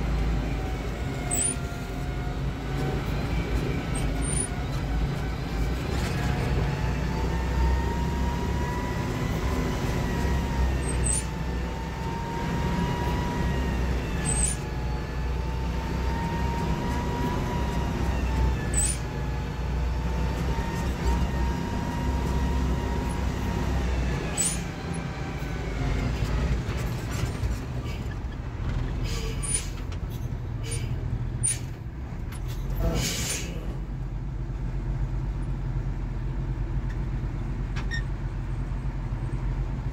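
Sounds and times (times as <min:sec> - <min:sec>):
diesel engine rumbling: 0:00.0 - 0:39.9.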